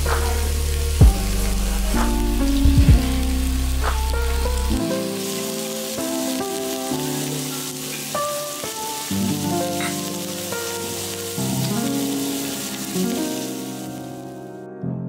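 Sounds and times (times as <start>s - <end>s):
beef sizzling on grill pan: 0.0s - 14.2s
instrumental background music: 0.0s - 15.0s.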